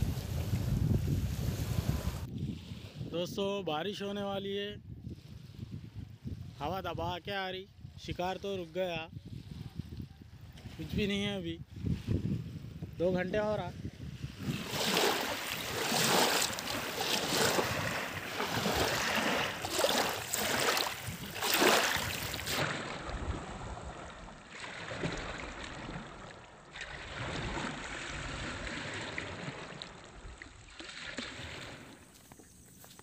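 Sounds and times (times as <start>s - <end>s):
small waves lapping on shore: 0.0s - 3.1s, 9.2s - 10.9s, 13.9s - 33.0s.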